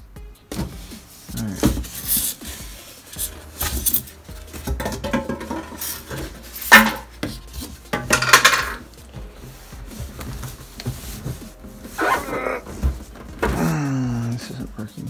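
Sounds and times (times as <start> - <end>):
cardboard and styrofoam scraping: 9.2 - 13.5.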